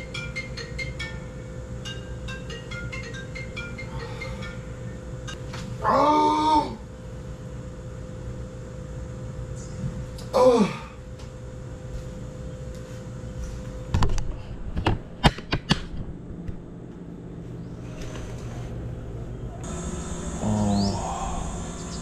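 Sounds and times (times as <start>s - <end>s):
man groaning: 5.8s - 6.8s, 10.3s - 11.0s, 20.4s - 21.6s.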